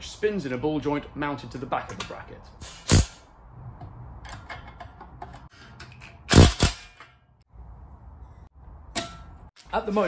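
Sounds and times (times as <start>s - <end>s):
sharp metal clanks: 1.9s - 3.3s, 4.2s - 7.4s, 8.9s - 9.5s
small metal clicks and knocks: 3.8s - 7.3s.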